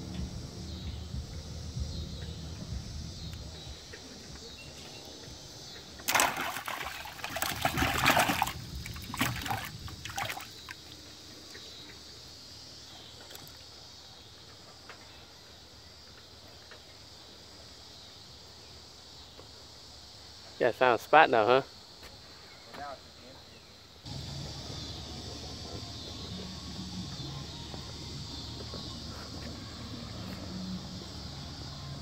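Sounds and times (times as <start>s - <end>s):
water splashing in a bucket: 6.0s - 11.0s.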